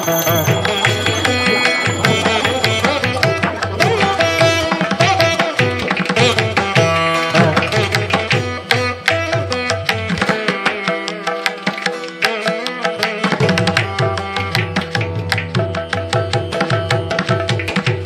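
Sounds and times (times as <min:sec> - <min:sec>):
sustained melody: 0:00.0 - 0:05.8.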